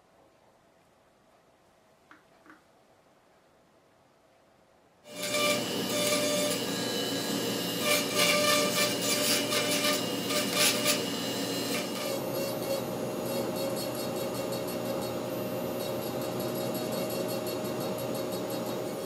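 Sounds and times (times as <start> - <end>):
rotary tool grinding horn: 5.1 - 19.0.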